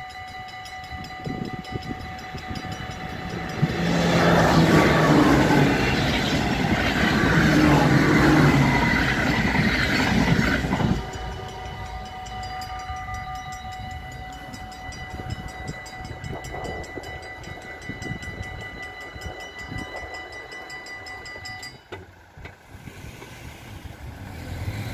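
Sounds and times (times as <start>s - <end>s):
level crossing bells ringing: 0.0s - 22.0s
electric train rushing past: 0.0s - 24.9s.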